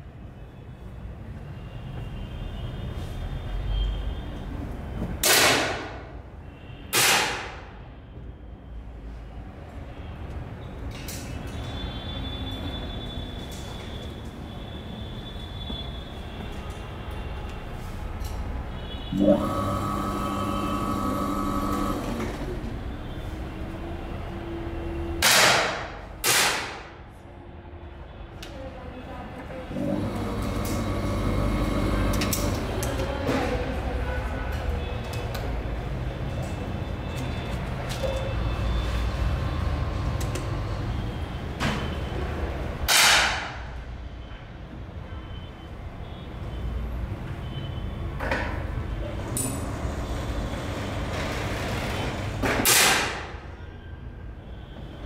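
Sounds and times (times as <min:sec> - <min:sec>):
air pistol shots: 0:05.2 - 0:06.0, 0:06.9 - 0:07.6, 0:25.2 - 0:26.9.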